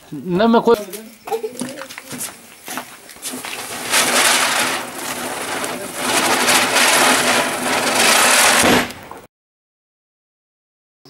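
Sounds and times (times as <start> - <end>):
firework fizzing hiss: 1.3 - 9.3.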